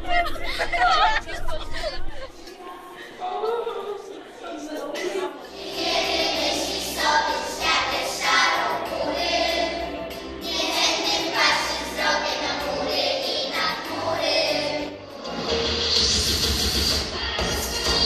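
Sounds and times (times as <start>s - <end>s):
children's choir singing: 5.4s - 15.6s.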